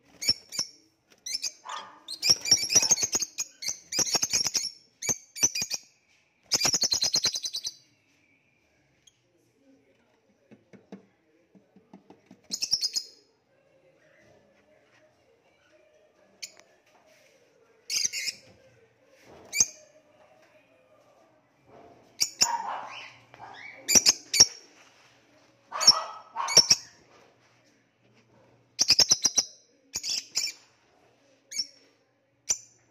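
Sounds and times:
lovebirds chirping: 0.2 - 5.9, 22.2 - 24.6, 25.7 - 27.0.

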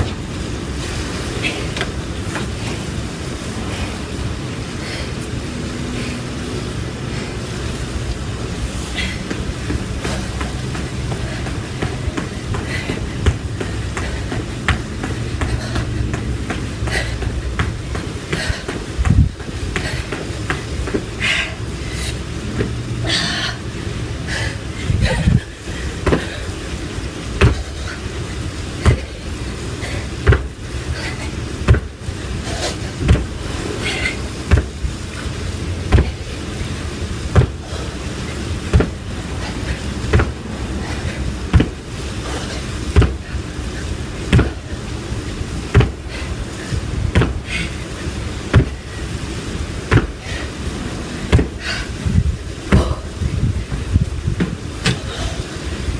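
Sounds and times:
feet landing on tiled floor: 37.3 - 37.8, 38.6 - 39.1, 41.5 - 41.8, 42.9 - 43.3, 45.7 - 46.1, 47.1 - 47.6, 48.5 - 48.9, 49.8 - 50.4, 51.3 - 51.8, 53.6 - 55.3.

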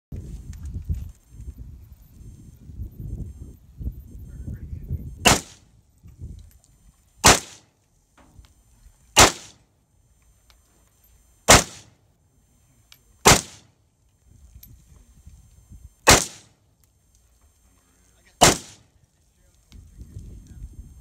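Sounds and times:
rifle single shots: 5.2 - 5.7, 7.2 - 7.7, 9.1 - 9.6, 11.5 - 12.0, 13.2 - 13.7, 16.0 - 16.6, 18.4 - 18.9.

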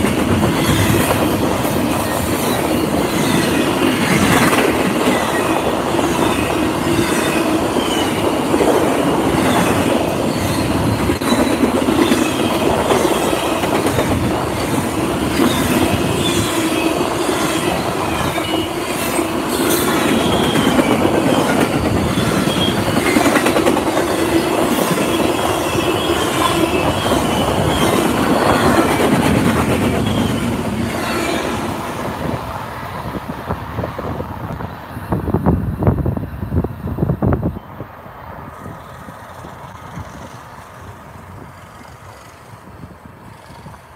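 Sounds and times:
freight train wheels rumbling: 0.0 - 43.9
high wheel squeals: 0.4 - 13.7, 14.6 - 23.3, 24.2 - 29.2, 29.9 - 31.7.

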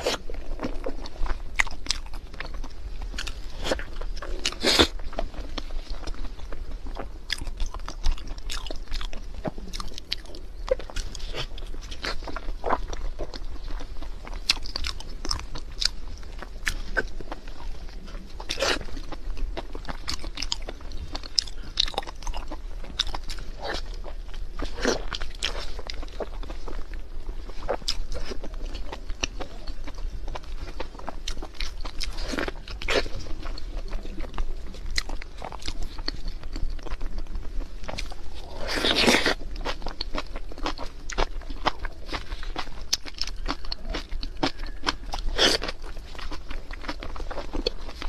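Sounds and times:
wet chewing and lip smacking: 0.0 - 27.0, 27.6 - 48.0.

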